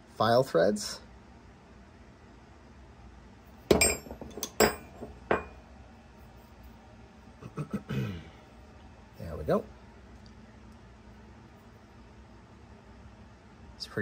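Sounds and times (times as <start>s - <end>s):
metal tools clinking: 3.7s - 5.6s
tools handling sounds: 3.7s - 5.6s.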